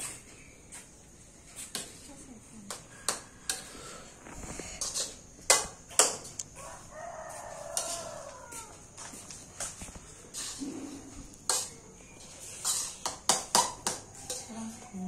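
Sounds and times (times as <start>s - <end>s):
metal spatula scraping a wok: 2.7s - 6.2s, 7.6s - 8.3s, 9.6s - 14.9s
rooster crowing: 6.5s - 9.0s.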